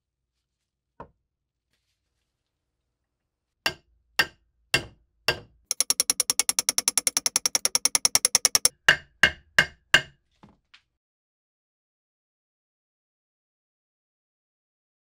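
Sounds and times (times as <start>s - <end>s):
hammer striking steel wedge: 3.7s - 10.1s
rapid hammer taps: 3.7s - 10.1s.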